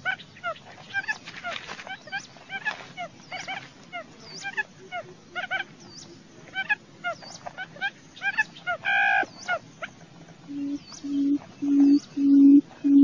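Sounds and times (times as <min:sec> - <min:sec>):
deep low booming bird call: 0:10.5 - 0:13.0.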